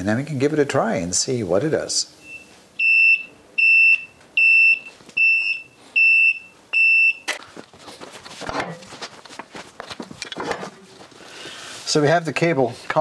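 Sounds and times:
car lift warning beeps: 0:02.2 - 0:07.3.

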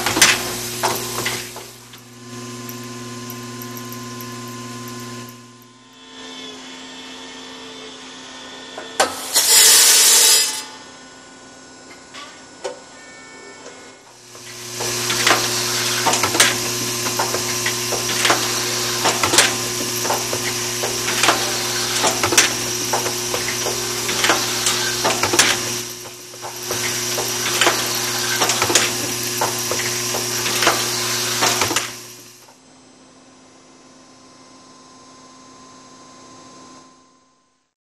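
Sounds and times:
machine humming: 0:00.0 - 0:08.7, 0:14.1 - 0:32.5
machine clicks and clacks: 0:14.3 - 0:32.6.

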